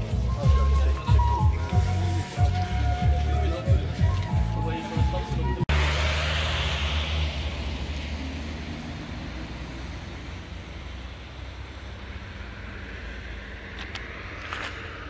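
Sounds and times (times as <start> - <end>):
vehicle rush with low hum: 4.8 - 15.0.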